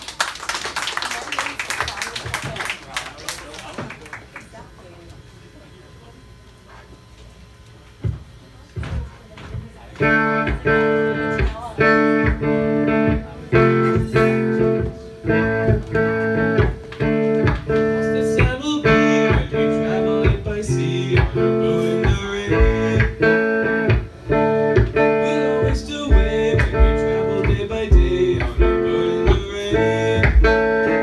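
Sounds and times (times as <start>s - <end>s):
drums: 8.0s - 31.0s
bass guitar: 10.0s - 31.0s
electric guitars strumming: 10.0s - 31.0s.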